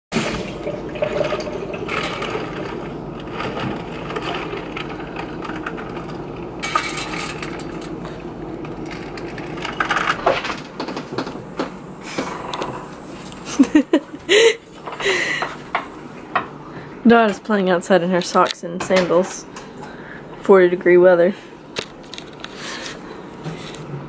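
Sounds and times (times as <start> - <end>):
nuts rattling in steel bowls: 1.9 - 8.1.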